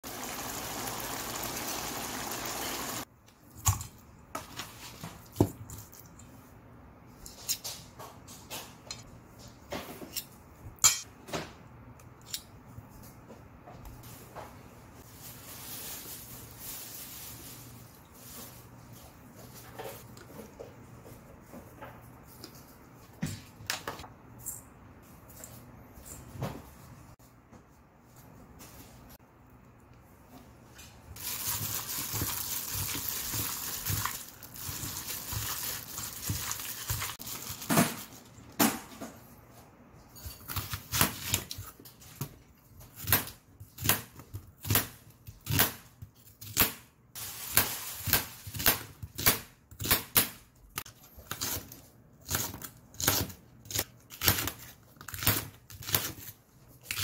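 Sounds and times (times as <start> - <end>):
meat sizzling in a pan: 0.0 - 3.0.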